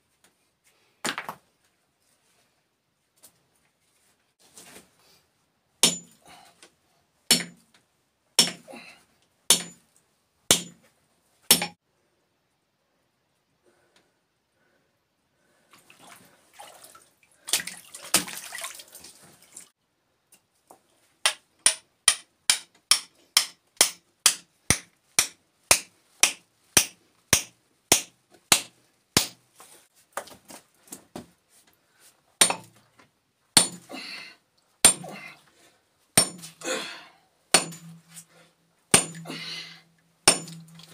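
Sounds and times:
hammer striking steel chisel: 5.8 - 6.2, 7.3 - 7.6, 8.4 - 8.7, 9.5 - 9.8, 10.5 - 10.8, 11.5 - 11.8, 21.2 - 29.4, 32.4 - 32.7, 33.6 - 33.9, 34.8 - 35.1, 36.2 - 36.5, 37.5 - 38.2, 38.9 - 39.3, 40.2 - 40.9.

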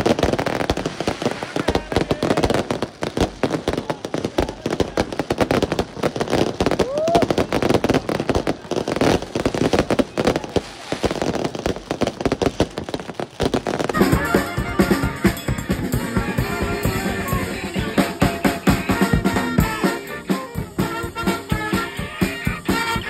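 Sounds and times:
fireworks bangs and crackles: 0.0 - 23.0
rising firework whistle: 6.6 - 7.6, 13.7 - 23.0.

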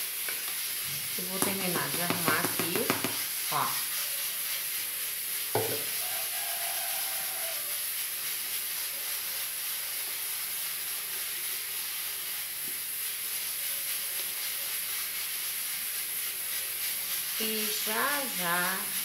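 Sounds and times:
steady hiss: 0.0 - 19.0
short sharp knock: 5.6 - 5.9.

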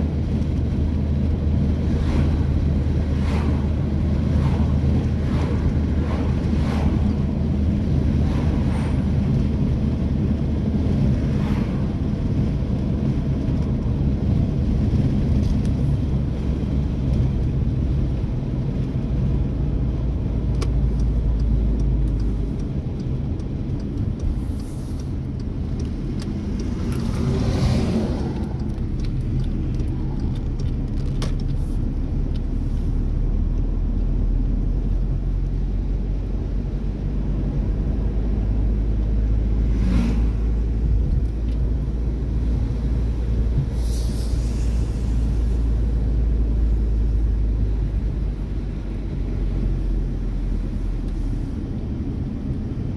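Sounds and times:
car engine and tyre rumble: 0.0 - 52.9.

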